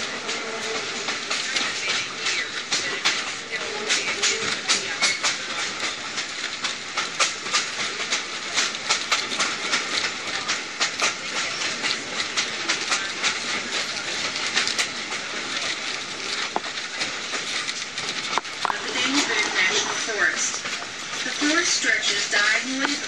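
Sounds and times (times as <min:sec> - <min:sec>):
train rushing noise: 0:00.0 - 0:23.0
wheels clacking on rails: 0:00.0 - 0:23.0.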